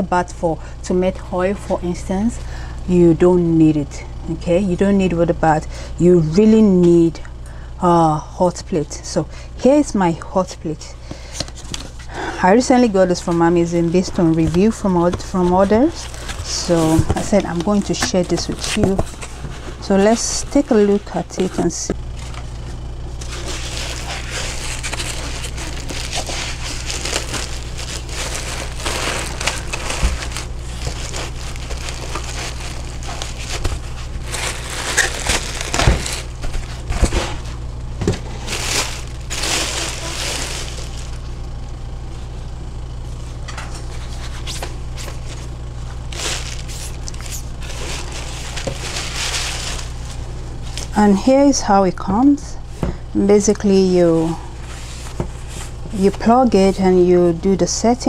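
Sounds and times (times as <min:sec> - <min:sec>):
steady low hum: 0:00.0 - 0:58.0
plastic bag and foam crinkling: 0:11.3 - 0:41.4, 0:43.8 - 0:51.5.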